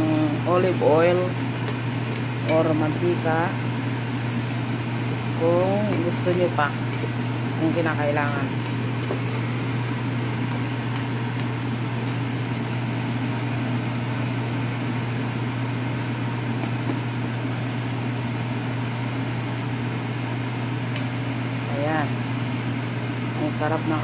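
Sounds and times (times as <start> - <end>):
fan motor humming: 0.0 - 24.0
rice sizzling in oil: 1.3 - 21.6
spatula stirring in pan: 5.9 - 12.3.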